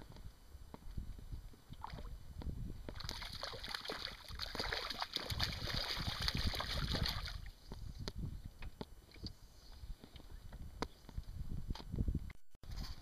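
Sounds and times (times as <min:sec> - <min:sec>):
fish splashing at water surface: 0:02.9 - 0:07.5.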